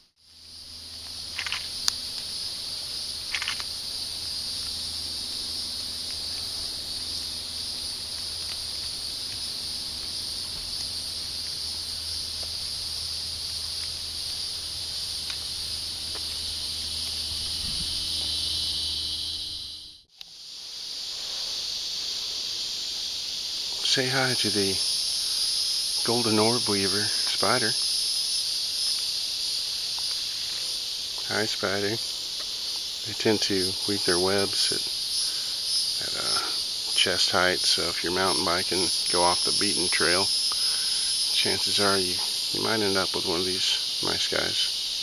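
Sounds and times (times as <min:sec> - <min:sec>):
insects droning: 0:00.0 - 0:45.0
faint clicks: 0:01.0 - 0:02.3, 0:03.3 - 0:03.7.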